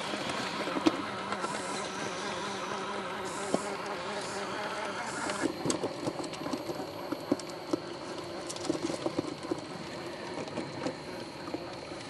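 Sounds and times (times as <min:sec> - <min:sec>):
electric motor and gears humming: 0:00.0 - 0:12.0.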